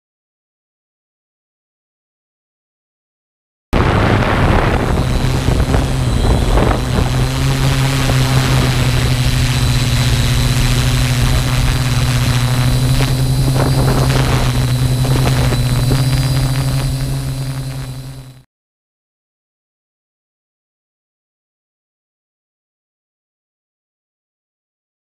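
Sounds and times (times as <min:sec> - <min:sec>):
drone propellers humming: 0:03.8 - 0:18.4.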